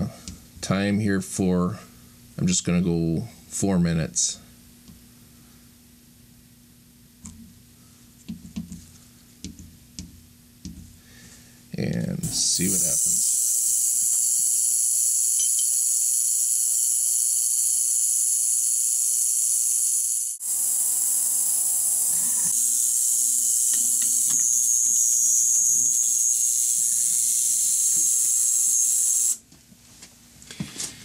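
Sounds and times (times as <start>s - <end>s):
high-pitched cavitation hiss: 12.2s - 29.4s.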